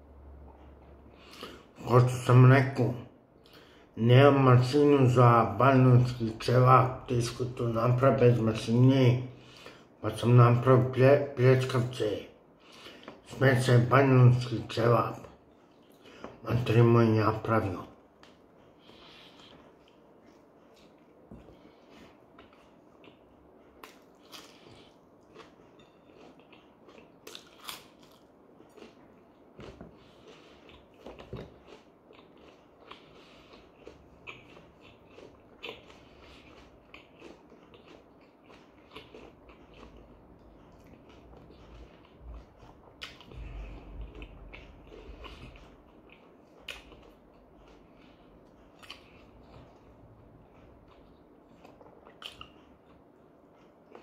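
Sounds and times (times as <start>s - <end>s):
person chewing food: 11.4s - 17.0s, 17.6s - 54.0s.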